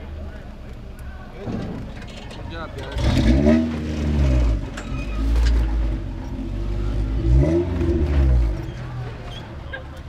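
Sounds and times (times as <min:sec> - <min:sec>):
off-road vehicle engine revving hard: 0:02.8 - 0:08.8.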